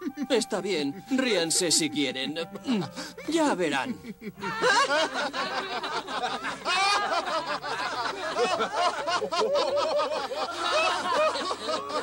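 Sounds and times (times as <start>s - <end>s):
people laughing: 2.6s - 12.0s.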